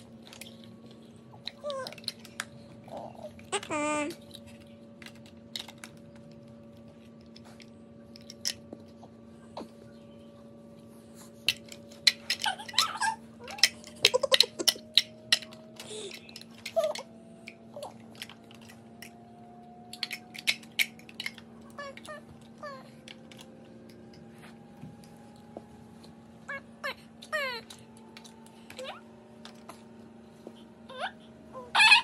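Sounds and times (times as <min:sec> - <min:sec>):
plastic blocks clicking together: 0:00.2 - 0:07.4, 0:08.1 - 0:08.6, 0:11.5 - 0:19.2, 0:19.9 - 0:22.2.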